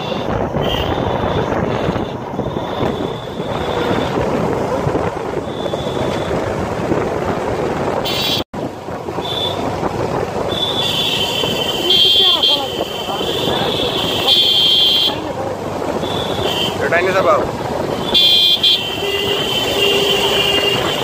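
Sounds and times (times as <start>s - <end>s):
motorcycle engines running: 0.0s - 21.0s
wind rushing over microphone: 0.0s - 21.0s.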